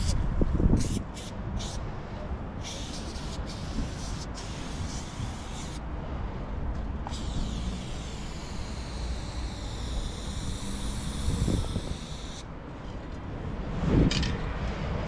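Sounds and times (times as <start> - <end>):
spray paint can hissing: 0.8 - 1.8, 2.6 - 5.8, 7.1 - 12.5.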